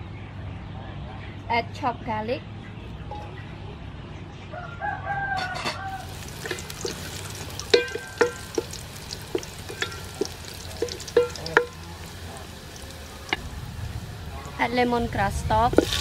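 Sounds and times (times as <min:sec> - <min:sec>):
rooster crowing: 0:04.5 - 0:06.5
garlic sizzling in hot oil: 0:05.9 - 0:16.0
wooden spatula tapping metal pot: 0:06.1 - 0:13.5.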